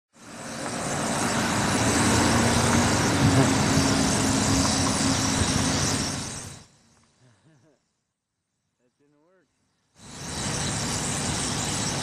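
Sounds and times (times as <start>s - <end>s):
huge flock of birds calling: 0.4s - 6.7s, 10.0s - 12.0s.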